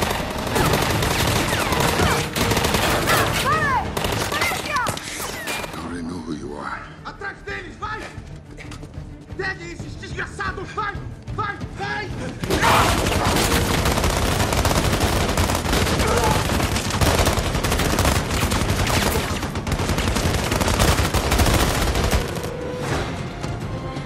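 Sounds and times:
guns firing rapidly: 0.0 - 5.0, 12.4 - 22.6.

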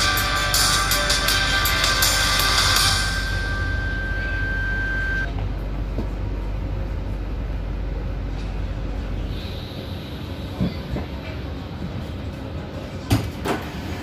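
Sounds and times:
low hum: 0.0 - 10.4
subway train running: 0.0 - 14.0
thin high steady tone: 0.4 - 5.3.

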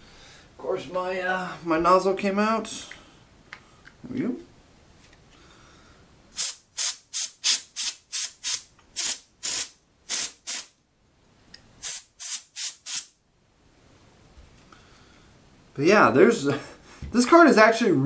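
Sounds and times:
compressed air hissing puffs: 6.3 - 10.7, 11.8 - 13.1.

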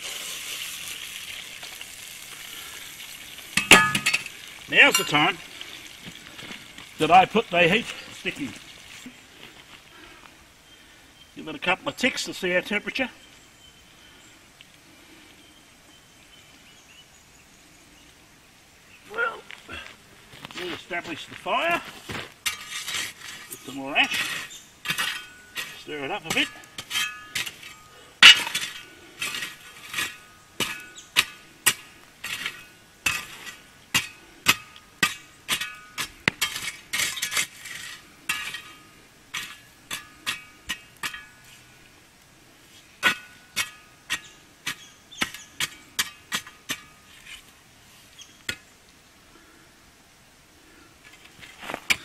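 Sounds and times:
shovel scraping coals: 0.0 - 10.0, 19.1 - 48.7, 51.0 - 52.0.

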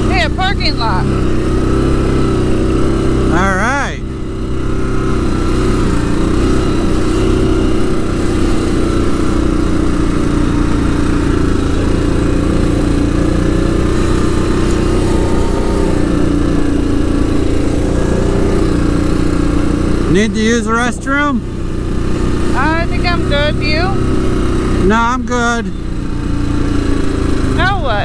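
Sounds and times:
quad bike engine running: 0.0 - 28.0.

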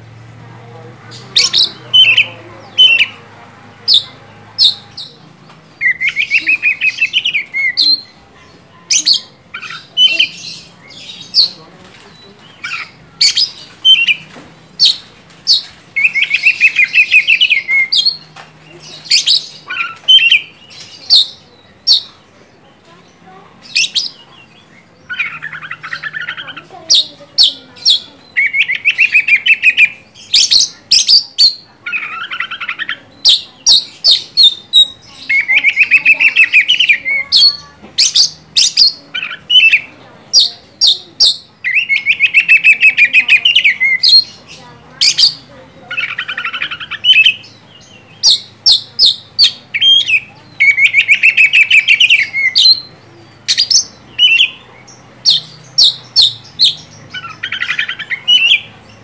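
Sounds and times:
bird singing whistles and trills: 45.0 - 58.7.

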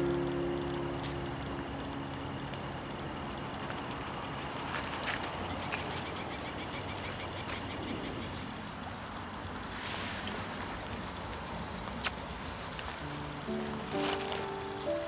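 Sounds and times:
background music: 0.0 - 4.3, 13.0 - 15.0
insects chirping: 0.0 - 15.0.

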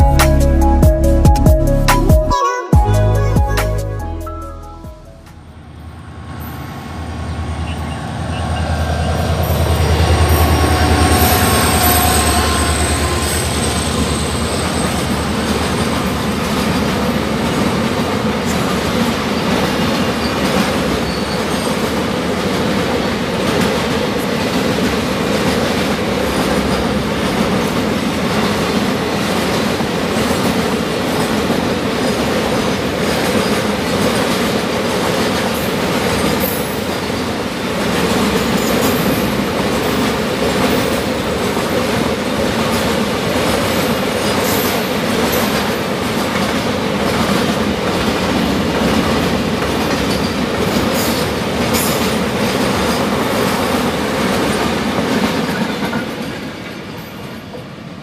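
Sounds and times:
train wagons rumbling past: 5.4 - 58.0
wheel squeal: 21.0 - 21.8.

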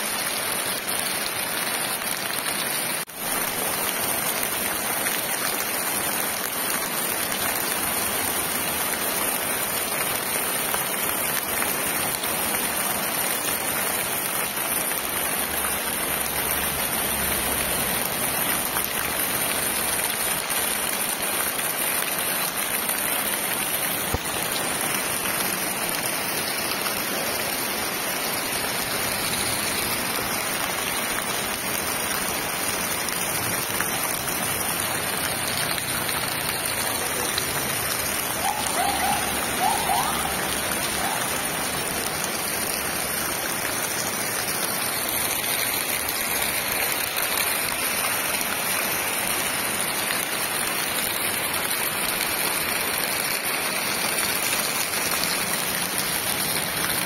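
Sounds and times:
heavy rain on rock: 0.0 - 57.0.

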